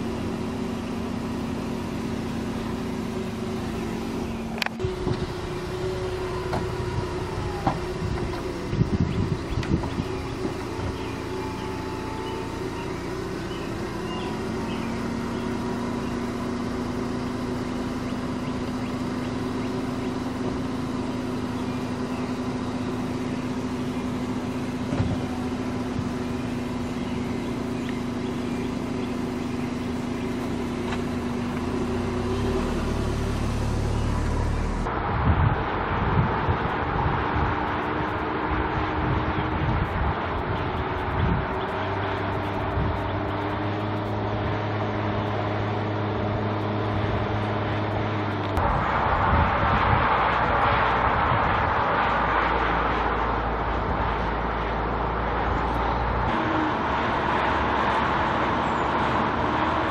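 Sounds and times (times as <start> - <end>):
car roof motor humming: 0.0 - 59.9
roof mechanism clicks and clunks: 6.3 - 11.1.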